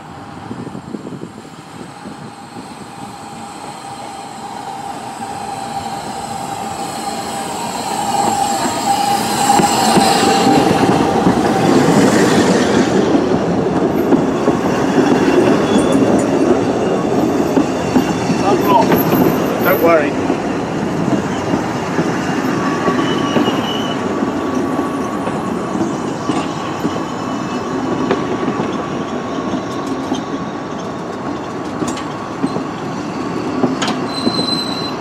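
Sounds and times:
steam train approaching: 0.0s - 35.0s
train wheels clattering: 7.9s - 20.4s
metallic squeal: 22.6s - 27.6s, 34.0s - 35.0s.

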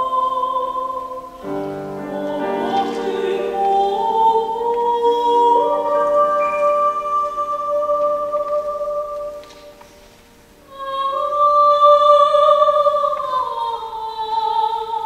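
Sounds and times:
grand piano accompaniment: 0.0s - 15.0s
soprano singing: 0.0s - 15.0s.

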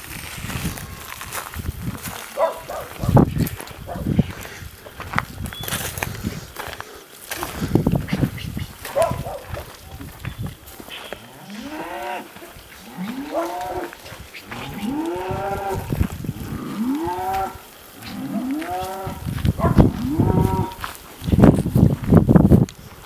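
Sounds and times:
cattle mooing: 11.2s - 20.8s.

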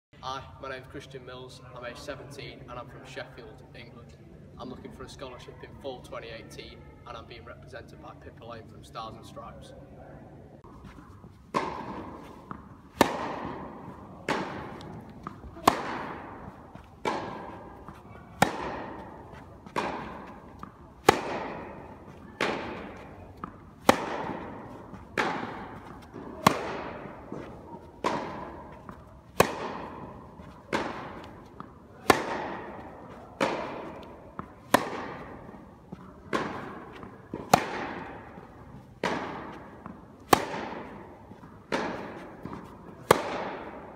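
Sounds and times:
tennis ball hit by rackets: 10.6s - 43.9s.

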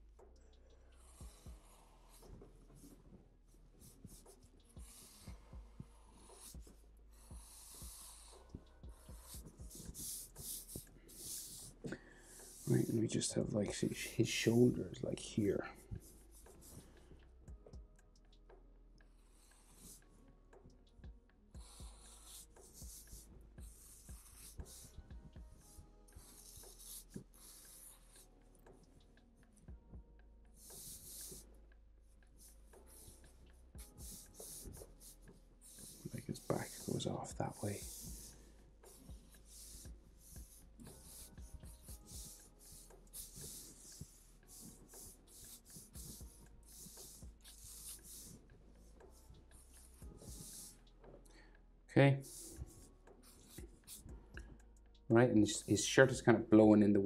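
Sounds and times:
marker scratching on paper: 3.8s - 17.0s, 19.2s - 20.1s, 21.6s - 29.0s, 30.6s - 50.8s, 52.2s - 54.2s.

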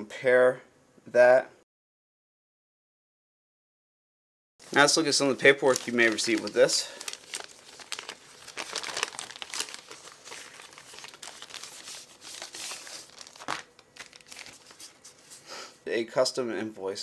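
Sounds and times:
paper rustling: 4.6s - 15.4s
plastic bag crinkling: 4.6s - 15.4s.

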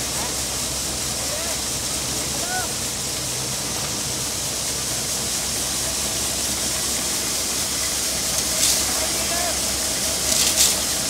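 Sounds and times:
corn thresher running: 0.0s - 11.0s
kernels pouring onto heap: 8.1s - 11.0s.

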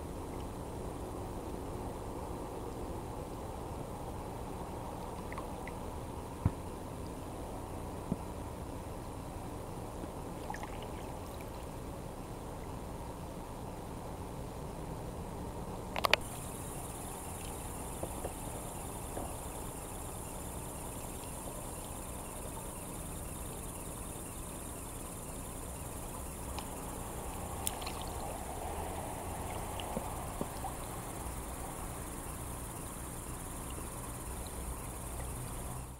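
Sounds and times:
crickets trilling: 0.0s - 14.9s, 15.7s - 35.9s
faint clicks: 26.5s - 26.8s.

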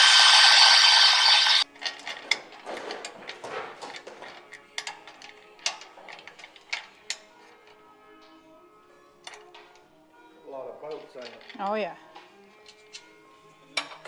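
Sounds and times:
cordless drill boring into steel: 0.0s - 1.6s
metallic clicks and knocks on frame: 1.8s - 7.3s.

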